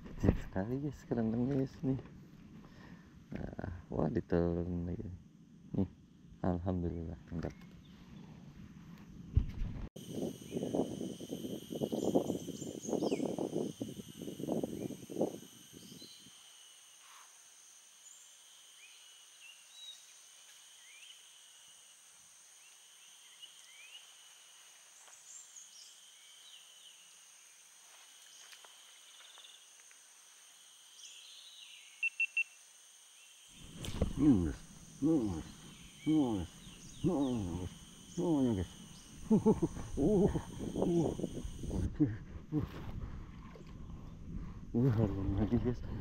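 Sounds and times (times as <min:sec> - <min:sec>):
insects droning: 0:00.0 - 0:46.0
bird chirps: 0:31.0 - 0:32.6, 0:33.5 - 0:41.7.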